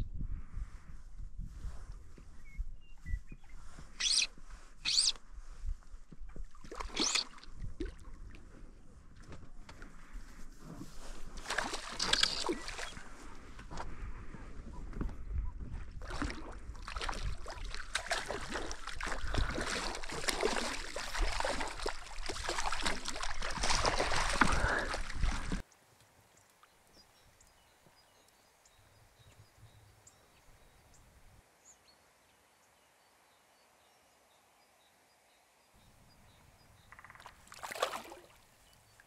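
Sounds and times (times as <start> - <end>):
wind rumbling on microphone: 0.0 - 25.6
water sloshing against raft: 6.3 - 13.3, 16.0 - 25.6, 37.2 - 38.6
small ticks: 12.0 - 12.6.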